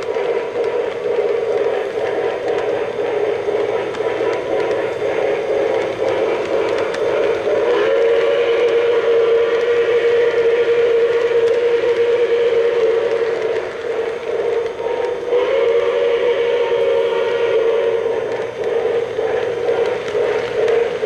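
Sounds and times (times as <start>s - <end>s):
model train rolling: 0.0s - 21.0s
faint clicks: 18.3s - 21.0s.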